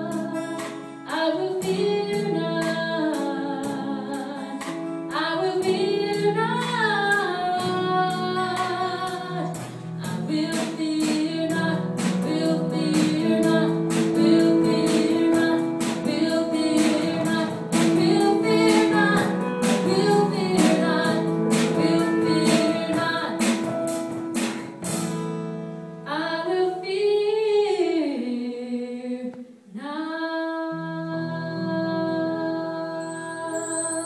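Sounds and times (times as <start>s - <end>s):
woman singing: 0.0s - 23.8s, 26.1s - 34.0s
keyboard: 0.0s - 25.5s
drum kit: 0.0s - 25.6s
strummed acoustic guitar: 0.0s - 25.9s.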